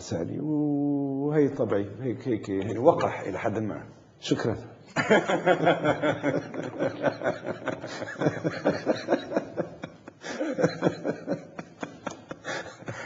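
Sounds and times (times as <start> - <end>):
chuckling laughter: 5.0 - 13.0.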